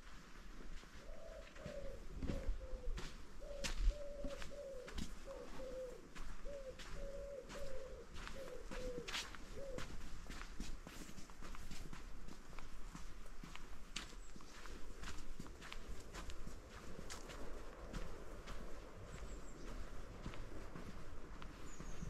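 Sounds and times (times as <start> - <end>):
footsteps: 0.0 - 22.0
bird cooing call: 1.0 - 10.1, 21.6 - 22.0.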